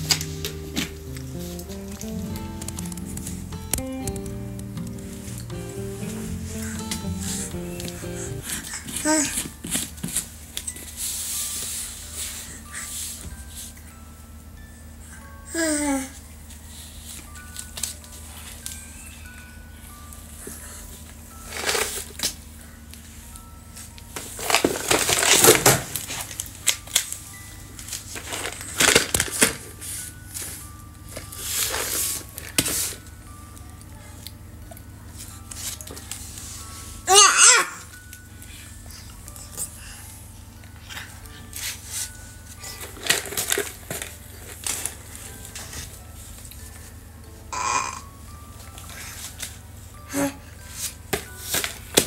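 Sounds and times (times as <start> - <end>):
crinkling handling noise: 0.0 - 13.8, 16.5 - 33.5, 40.5 - 47.0.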